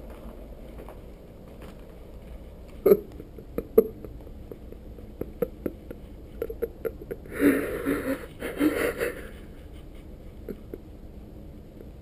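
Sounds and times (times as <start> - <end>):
noisy rustle: 0.0 - 2.9.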